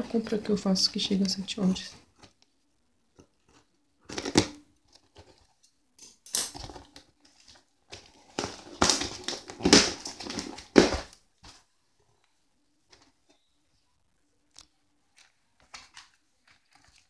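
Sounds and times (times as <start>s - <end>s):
cardboard rustling and scraping: 6.5s - 11.6s
packing tape tearing: 8.3s - 11.1s.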